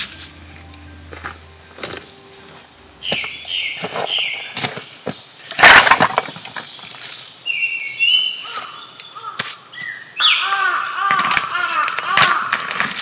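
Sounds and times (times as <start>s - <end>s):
twigs and firewood snapping: 11.0s - 13.0s.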